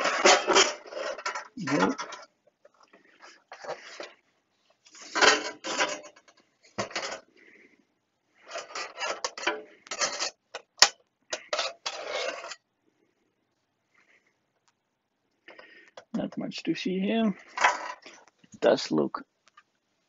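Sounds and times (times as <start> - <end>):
metal parts scraping and clattering: 0.0 - 4.1, 4.8 - 7.3, 8.4 - 12.6, 17.4 - 18.2.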